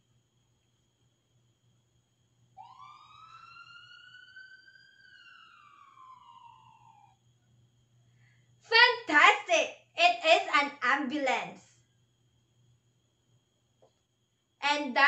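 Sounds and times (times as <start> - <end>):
ambulance siren wail: 2.6 - 7.2.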